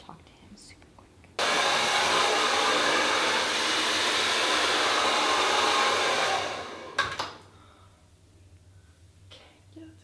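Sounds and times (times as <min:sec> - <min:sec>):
hair dryer blowing: 0:01.4 - 0:07.4.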